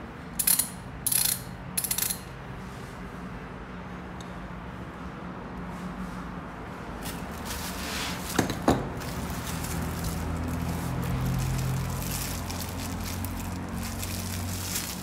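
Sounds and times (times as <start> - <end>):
plastic wrapping crinkling: 7.0 - 15.0.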